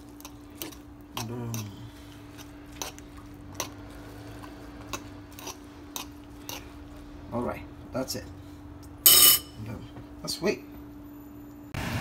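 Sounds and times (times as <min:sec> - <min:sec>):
utensil stirring wet mix in pan: 0:00.0 - 0:07.2.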